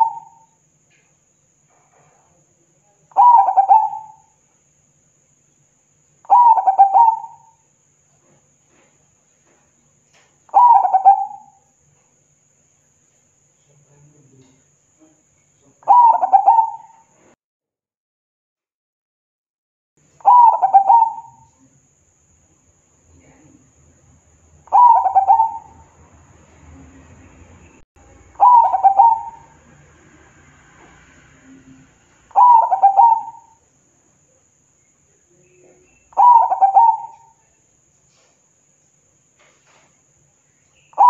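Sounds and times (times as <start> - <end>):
dove cooing: 0.0 - 0.5, 3.2 - 4.2, 6.3 - 7.6, 10.5 - 11.6, 15.9 - 17.1, 20.2 - 21.6, 24.7 - 25.9, 28.4 - 29.6, 32.3 - 33.6, 36.2 - 37.4.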